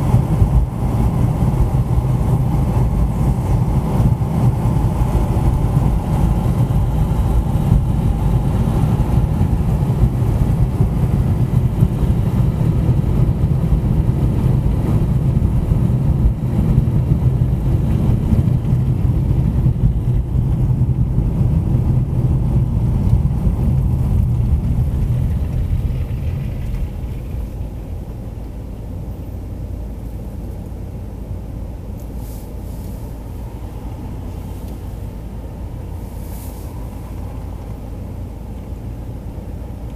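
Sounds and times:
car tyres and engine rumble: 0:00.0 - 0:39.9.

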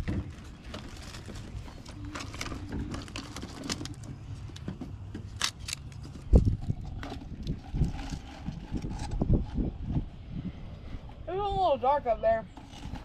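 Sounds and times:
food wrappers rustling: 0:00.0 - 0:04.2
low rumble: 0:00.4 - 0:04.6.

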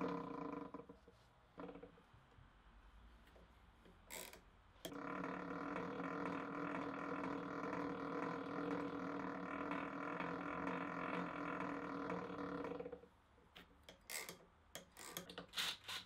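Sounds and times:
low workshop noise: 0:00.0 - 0:16.0
motor and gears humming: 0:04.8 - 0:13.0.

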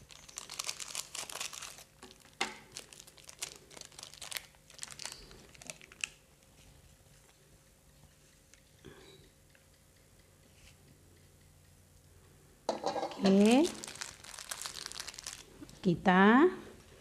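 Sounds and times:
plastic sachet crinkling: 0:00.0 - 0:06.6, 0:13.2 - 0:15.9.

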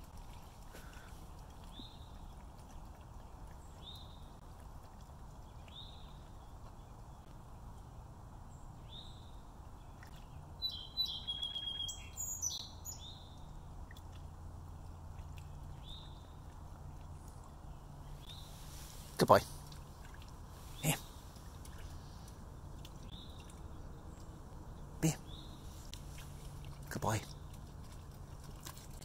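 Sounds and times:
bird chirping and twittering: 0:10.6 - 0:13.4.

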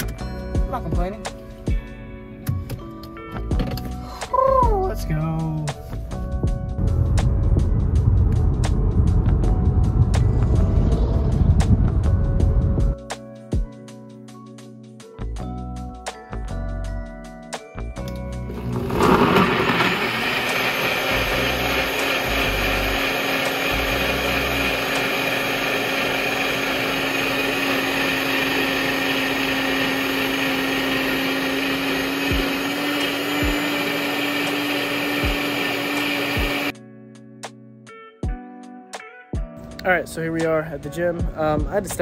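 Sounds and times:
blender whirring: 0:18.4 - 0:36.7.

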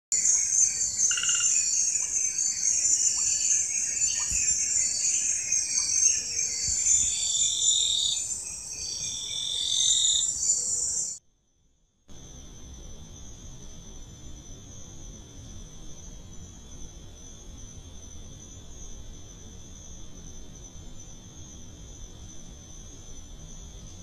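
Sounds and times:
high-pitched insect trill: 0:00.1 - 0:24.0
pulsing frog calls: 0:00.2 - 0:11.2.

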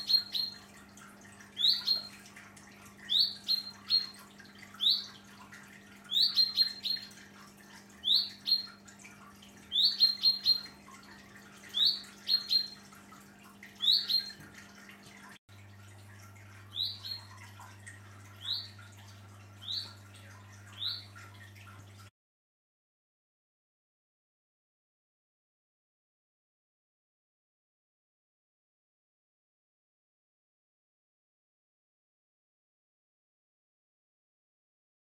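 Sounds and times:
chaffinch calling: 0:00.0 - 0:00.6, 0:01.6 - 0:02.2, 0:03.0 - 0:04.2, 0:04.8 - 0:05.2, 0:06.1 - 0:07.2, 0:08.0 - 0:08.8, 0:09.7 - 0:10.8, 0:11.7 - 0:12.8, 0:13.8 - 0:14.4, 0:16.7 - 0:17.4, 0:18.3 - 0:18.8, 0:19.6 - 0:20.0, 0:20.7 - 0:21.2.

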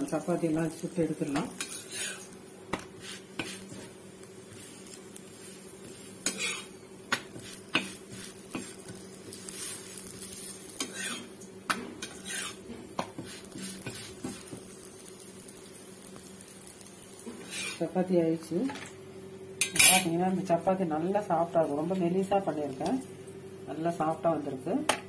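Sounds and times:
bread sizzling: 0:00.0 - 0:24.5
metal spatula scraping on iron: 0:01.6 - 0:02.3, 0:06.2 - 0:06.7, 0:12.0 - 0:12.6, 0:17.4 - 0:17.8, 0:19.6 - 0:20.1.

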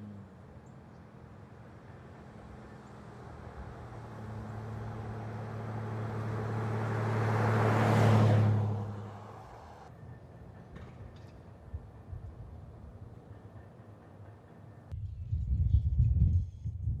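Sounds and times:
truck engine hum passing: 0:00.0 - 0:10.6
tyre and road noise: 0:00.0 - 0:15.0.

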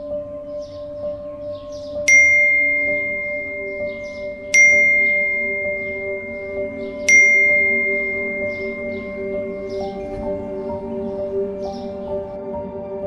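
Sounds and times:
low steady drone: 0:00.0 - 0:12.5
phone notification chimes: 0:02.1 - 0:10.9.

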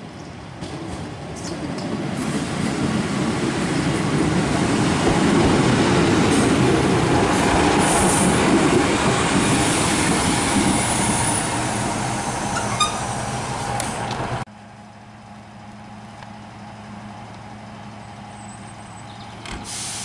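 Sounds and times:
diesel train passing: 0:00.0 - 0:20.0
high squeal: 0:10.8 - 0:13.4.

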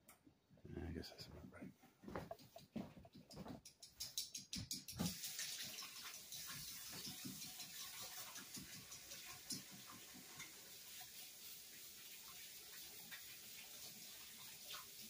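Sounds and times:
tap running into steel sink: 0:04.0 - 0:10.5.

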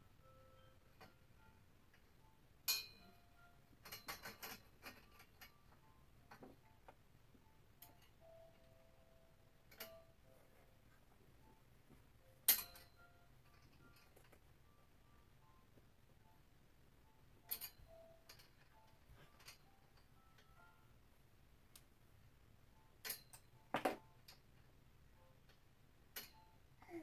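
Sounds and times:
metal clothes rack clinking: 0:03.8 - 0:05.5, 0:12.4 - 0:12.9, 0:17.5 - 0:19.7.

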